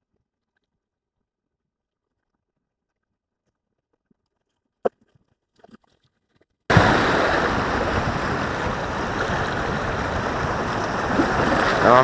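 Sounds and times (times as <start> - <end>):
sea surf washing against rocks: 6.7 - 12.0
wind noise on microphone: 6.7 - 12.0.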